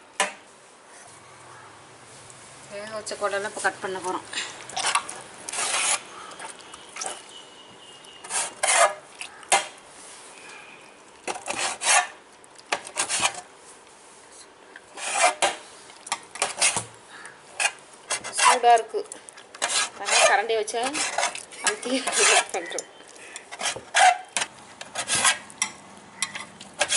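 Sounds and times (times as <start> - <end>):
knife scraping metal plate: 4.8 - 6.1, 8.2 - 9.7, 11.3 - 12.2, 12.8 - 13.4, 15.0 - 15.6, 16.4 - 16.9, 17.6 - 18.6, 19.6 - 22.7, 23.5 - 26.9.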